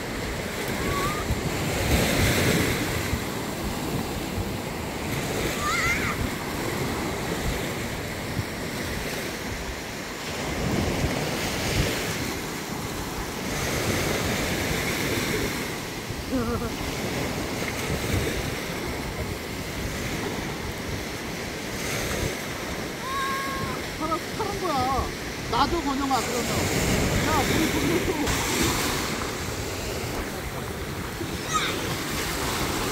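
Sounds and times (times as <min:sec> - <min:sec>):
surf washing on a beach: 0:00.0 - 0:32.9
wind gusting on microphone: 0:00.0 - 0:32.9.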